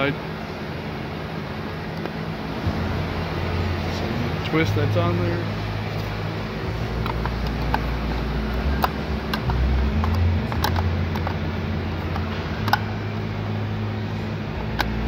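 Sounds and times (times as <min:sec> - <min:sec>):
ventilation hum: 0:00.0 - 0:15.0
plastic clicks and taps: 0:07.0 - 0:11.4.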